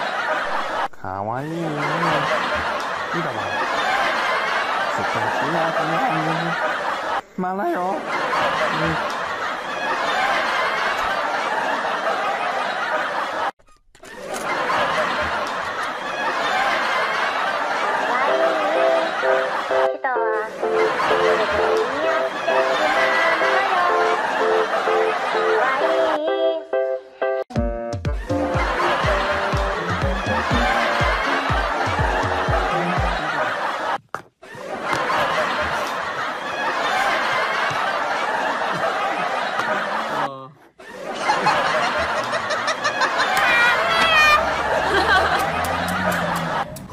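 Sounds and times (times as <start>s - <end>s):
people laughing: 0.0s - 26.3s, 28.2s - 46.9s
deep beats: 27.5s - 33.2s.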